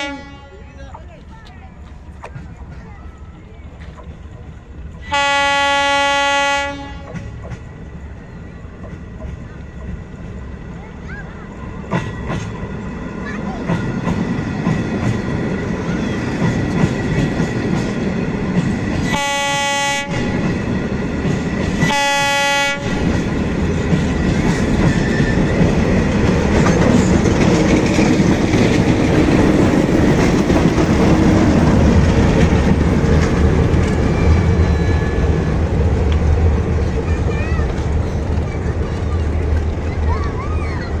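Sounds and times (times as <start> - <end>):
train horn blasts: 0.0 - 0.6, 5.0 - 7.3, 19.0 - 20.5, 21.8 - 23.3
diesel locomotive engine: 0.0 - 41.0
train wheels rumbling and clattering: 0.0 - 41.0.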